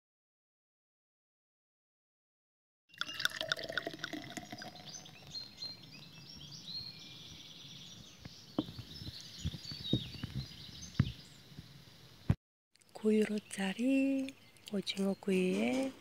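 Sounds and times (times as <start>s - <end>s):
beer pouring into a glass: 2.9s - 5.5s
birds chirping: 3.0s - 16.0s.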